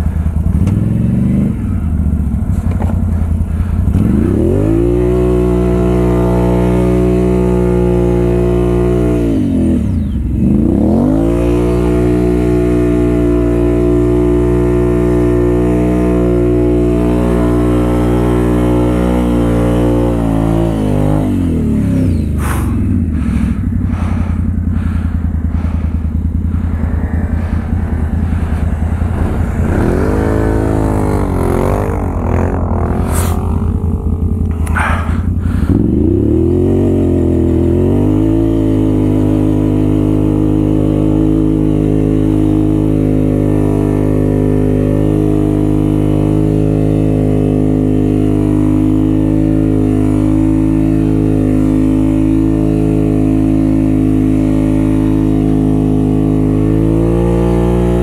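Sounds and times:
atv engine revving: 0.0s - 58.0s.

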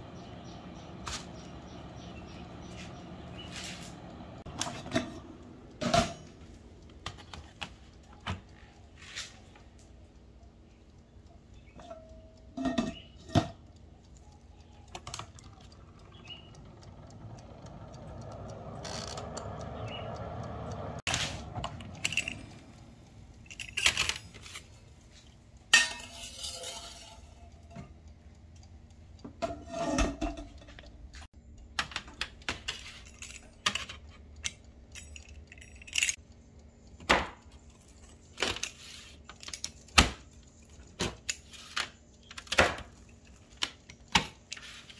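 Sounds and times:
metal utensils clinking on glass: 25.8s - 27.8s.

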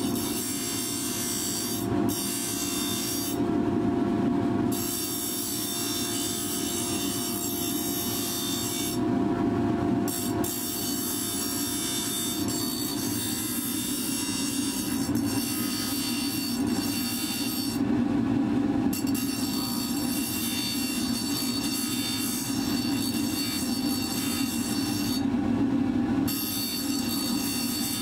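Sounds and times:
bench grinder humming: 0.0s - 3.4s, 4.7s - 9.0s, 10.0s - 17.8s, 18.9s - 25.3s, 26.3s - 28.0s
steel hissing on grinding wheel: 19.0s - 25.2s.

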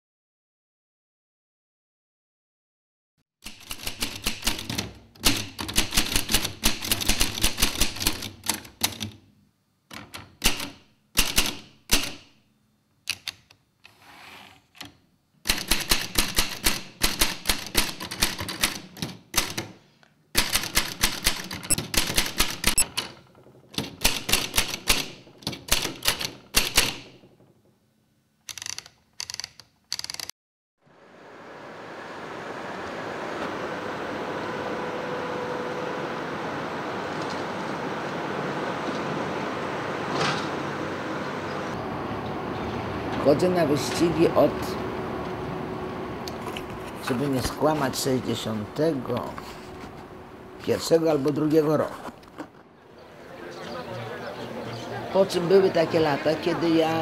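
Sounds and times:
typewriter keys clacking: 3.4s - 9.2s, 10.0s - 12.3s, 15.5s - 19.7s, 20.4s - 23.1s, 23.8s - 27.2s, 28.5s - 30.3s.

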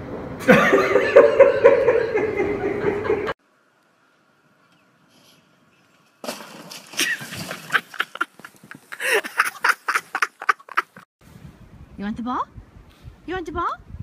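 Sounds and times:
bursts of laughter: 0.4s - 3.4s, 7.0s - 11.0s.

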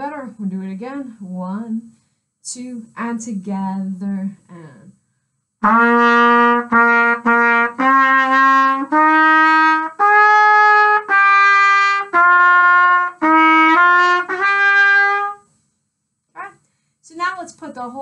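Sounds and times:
solo trumpet melody: 5.6s - 15.4s.

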